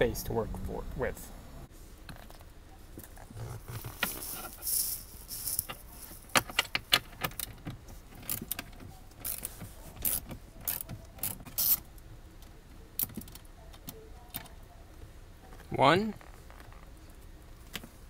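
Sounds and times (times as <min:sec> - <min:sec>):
ratchet wrench clicking: 0:10.0 - 0:11.8.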